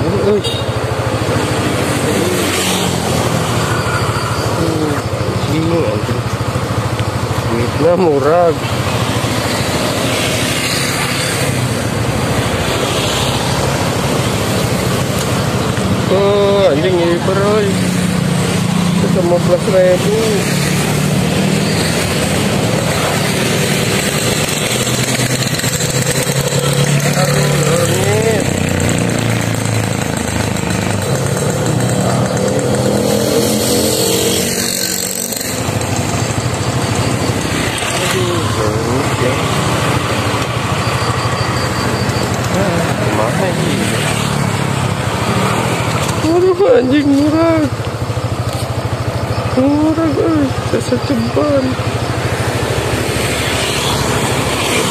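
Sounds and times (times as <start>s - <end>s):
motorcycle engine running: 0.0s - 54.9s.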